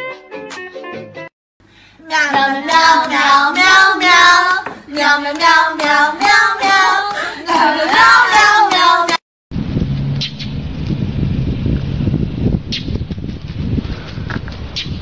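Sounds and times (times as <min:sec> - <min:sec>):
child singing: 0:02.0 - 0:09.2.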